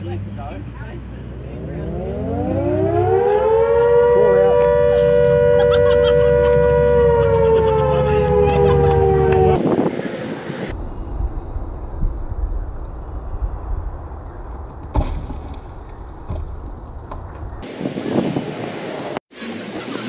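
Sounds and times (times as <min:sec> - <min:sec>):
mechanical siren wailing: 0:01.4 - 0:09.6.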